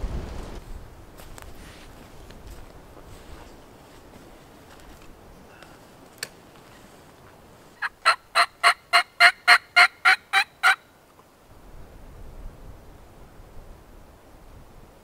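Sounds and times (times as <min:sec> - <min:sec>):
turkey yelps: 0:07.8 - 0:10.8.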